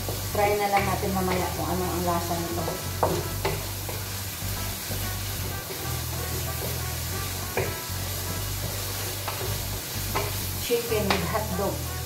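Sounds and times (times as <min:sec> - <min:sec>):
chicken sizzling in oil: 0:00.0 - 0:12.0
spatula scraping pan: 0:00.0 - 0:12.0.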